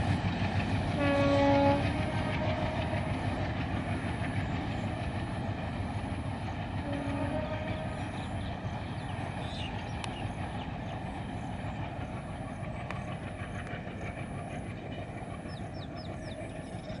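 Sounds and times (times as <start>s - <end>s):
distant train rumble on bridge: 0.0s - 17.0s.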